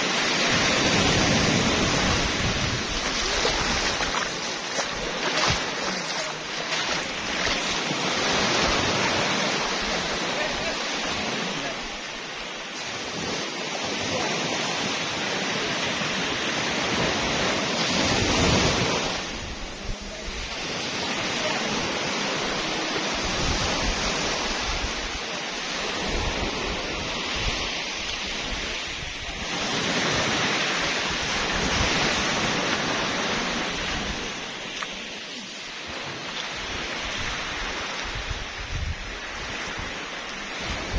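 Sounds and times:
surf washing onto beach: 0.0s - 40.9s
wind buffeting microphone: 0.5s - 10.2s, 36.6s - 40.9s.

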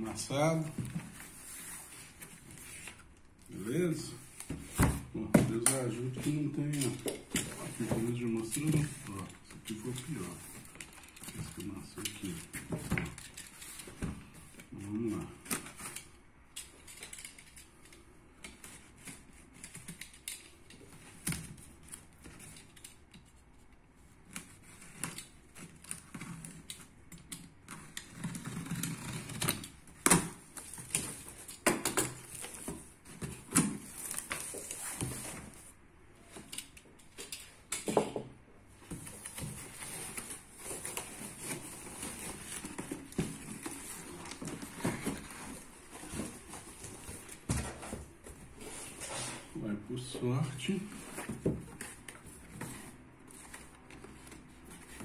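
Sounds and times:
cardboard rustling and scraping: 0.4s - 16.0s, 27.8s - 36.5s, 38.7s - 49.6s, 50.5s - 55.0s.

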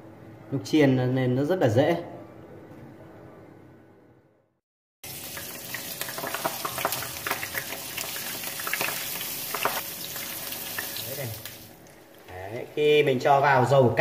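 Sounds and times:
food deep-frying in hot oil: 5.0s - 12.3s.

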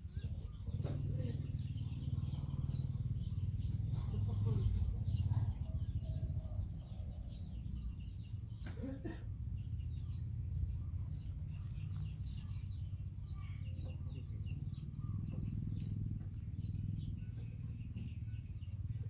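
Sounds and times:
small birds chirping: 0.0s - 19.0s
steady low rumble: 9.3s - 19.0s.

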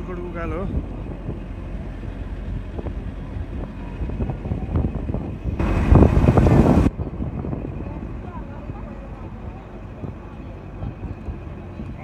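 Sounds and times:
bus engine and road noise: 0.0s - 12.0s
burst of rushing noise: 5.4s - 6.9s.

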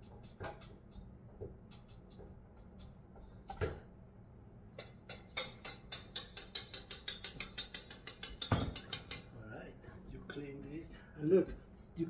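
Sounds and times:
whisk rattling in metal bowl: 4.8s - 9.4s.

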